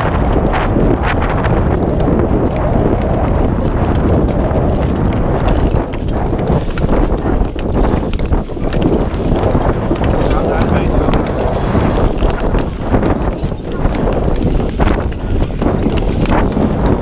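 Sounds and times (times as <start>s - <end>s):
wind rumble on microphone: 0.0s - 17.0s
skate blades scraping on ice: 3.6s - 17.0s.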